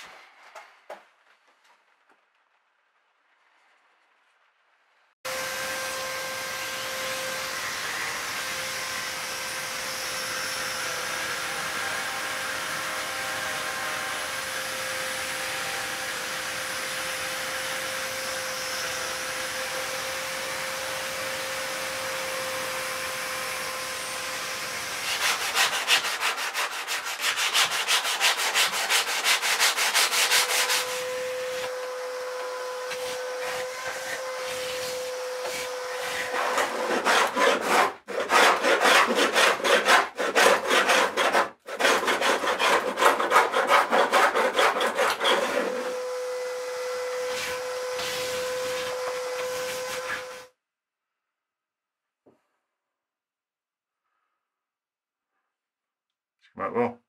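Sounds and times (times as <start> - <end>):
electric palm sander whine: 5.3 - 25.8, 29.9 - 36.9, 45.2 - 50.4
hand sanding strokes: 24.7 - 46.0, 47.2 - 50.5.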